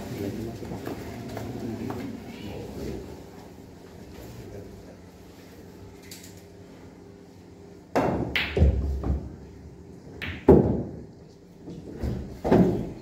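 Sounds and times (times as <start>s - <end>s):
knocks on pool table: 10.2s - 11.0s.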